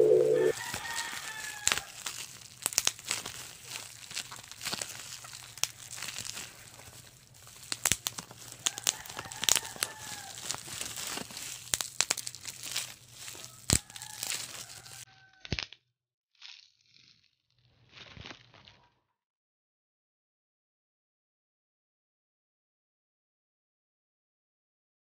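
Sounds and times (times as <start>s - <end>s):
plastic wrapper crinkling: 0.6s - 15.0s.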